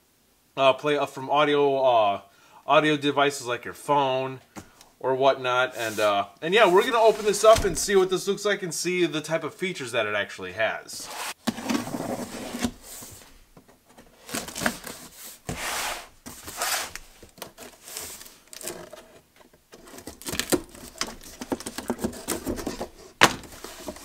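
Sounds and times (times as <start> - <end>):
cardboard scraping and rustling: 5.8 - 8.1, 11.0 - 24.0
knife cutting cardboard: 11.0 - 13.2, 14.2 - 19.2.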